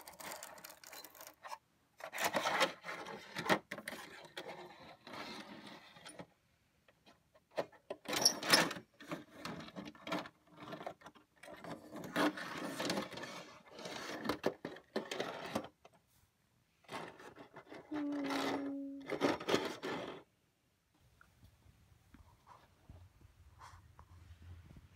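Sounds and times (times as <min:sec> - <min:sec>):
toy cars rattling on plastic: 0:00.0 - 0:06.3, 0:07.6 - 0:15.8, 0:16.9 - 0:20.3.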